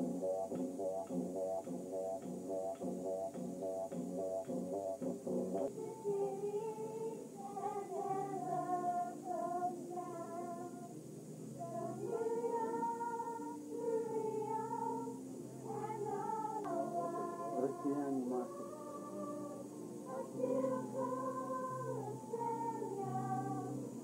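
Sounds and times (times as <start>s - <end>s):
girls singing together: 5.7s - 24.0s.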